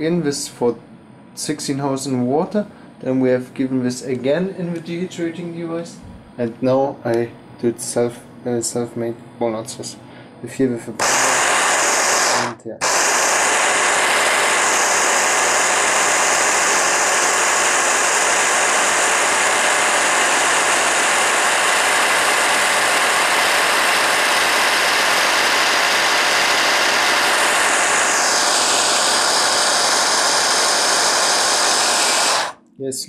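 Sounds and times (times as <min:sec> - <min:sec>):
electric chopper grinding nuts: 0:11.0 - 0:32.6.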